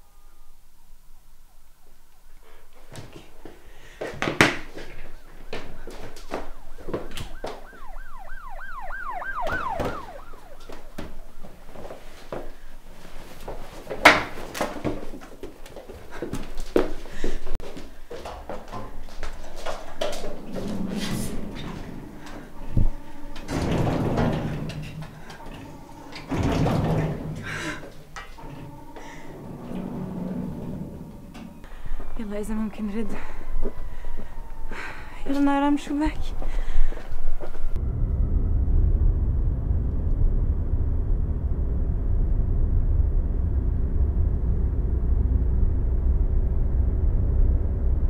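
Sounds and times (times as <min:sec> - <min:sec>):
siren wailing up and down: 0:04.8 - 0:12.0, 0:20.6 - 0:27.4, 0:28.3 - 0:48.0
knocks and clatters of handling: 0:09.5 - 0:28.8
elevator doors sliding: 0:18.8 - 0:32.7.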